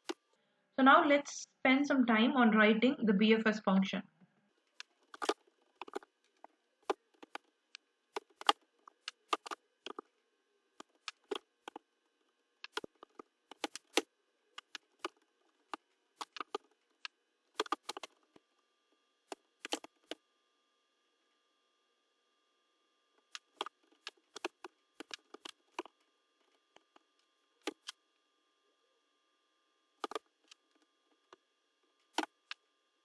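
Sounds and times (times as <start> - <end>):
keyboard keys clicking: 4.8 - 7.5, 8.2 - 10.1, 10.8 - 11.8, 12.6 - 18.2.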